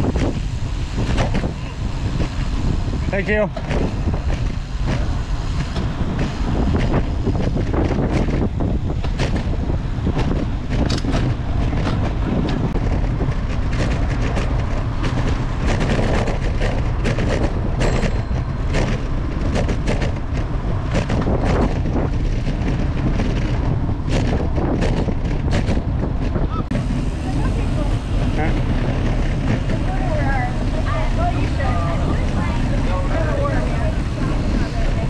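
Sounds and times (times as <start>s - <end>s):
wind buffeting microphone: 0.0s - 35.0s
knocks and rattles from bumps: 3.5s - 26.5s.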